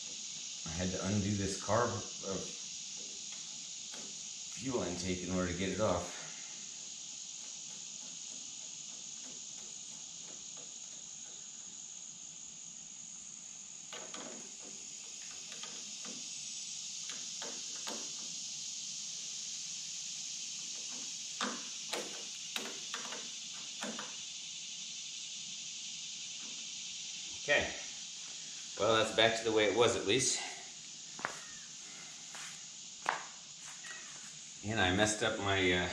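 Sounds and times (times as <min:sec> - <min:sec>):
steady high hiss: 0:00.0 - 0:35.9
hand tools clicking and tapping: 0:13.9 - 0:16.2, 0:20.8 - 0:24.1.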